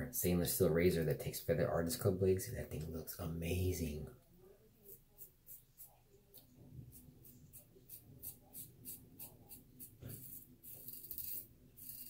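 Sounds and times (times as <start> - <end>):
razor scraping lathered stubble: 4.8 - 12.0.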